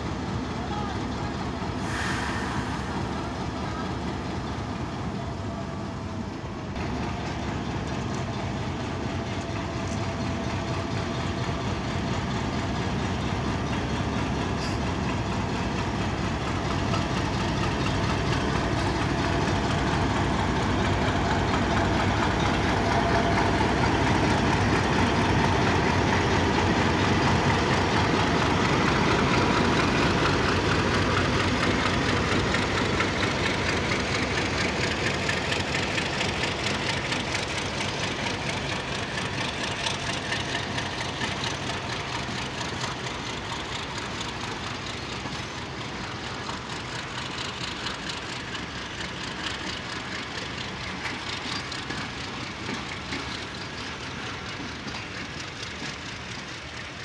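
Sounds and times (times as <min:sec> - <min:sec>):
diesel locomotive rolling past: 0:00.0 - 0:57.0.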